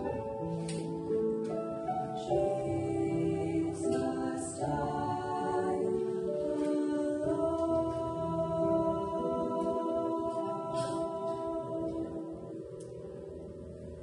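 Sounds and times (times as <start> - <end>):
two women singing a duet: 2.1 - 12.8.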